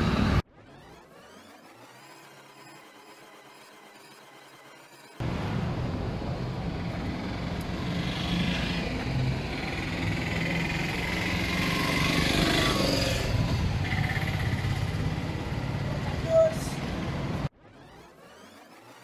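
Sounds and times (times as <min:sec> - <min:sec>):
vehicles passing on road: 0:00.0 - 0:00.6, 0:04.2 - 0:17.8.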